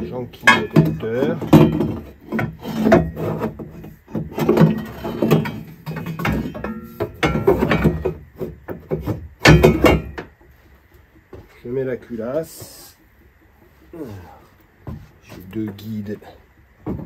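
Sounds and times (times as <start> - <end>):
metal parts and tools clattering: 0.4 - 8.2, 9.0 - 10.3.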